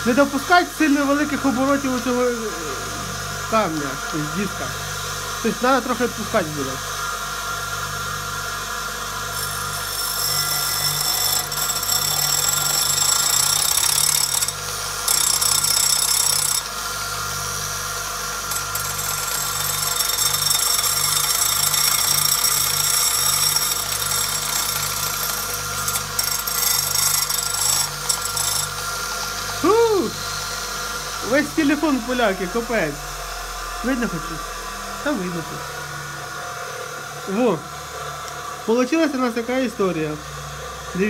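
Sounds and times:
bench grinder motor humming: 0:00.0 - 0:41.0.

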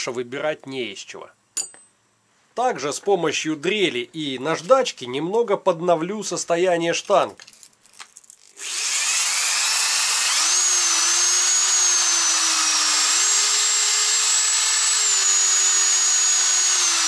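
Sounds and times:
electric drill whining: 0:08.6 - 0:17.0.

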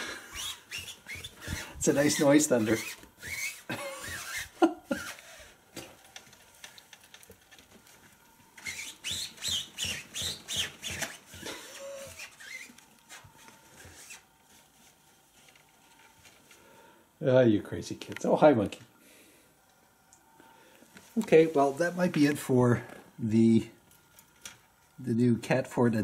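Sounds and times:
cat scratching nylon tent: 0:00.2 - 0:05.3, 0:08.6 - 0:15.5.

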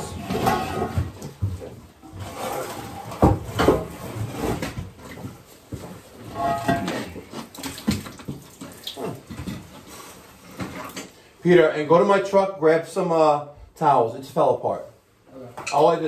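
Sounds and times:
water spilling and splashing: 0:06.8 - 0:10.0.

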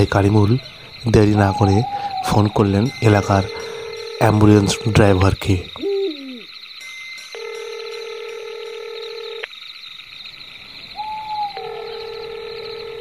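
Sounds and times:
constant high chirring: 0:00.0 - 0:13.0
telephone ringback tone: 0:07.4 - 0:09.4, 0:11.6 - 0:13.0.

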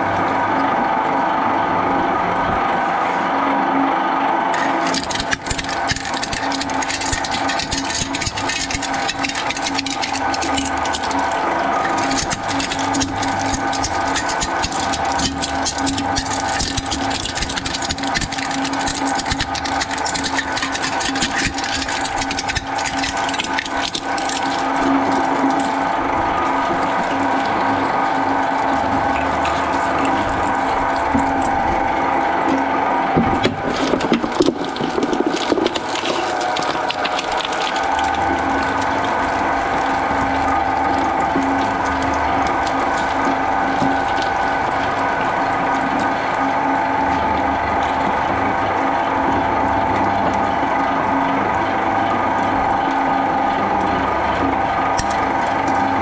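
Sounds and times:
shredder mechanical drone: 0:00.0 - 0:56.0
shredder crackling and grinding: 0:04.5 - 0:48.5.

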